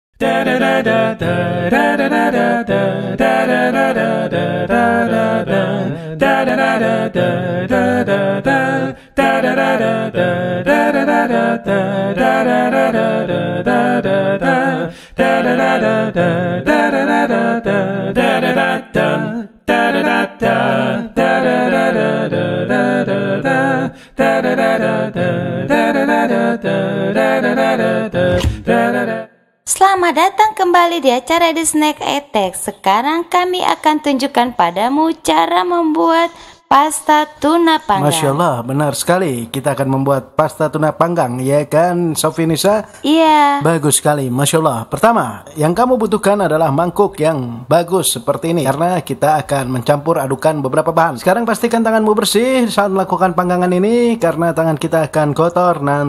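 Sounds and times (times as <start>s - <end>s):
sung vocal jingle: 0.2s - 29.4s, 37.8s - 38.9s.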